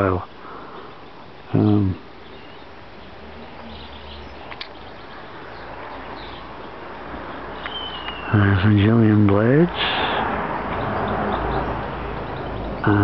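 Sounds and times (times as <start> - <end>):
steady background hiss: 0.0 - 10.4
small click: 4.5 - 4.8
bird chirps and whistles: 7.6 - 8.4.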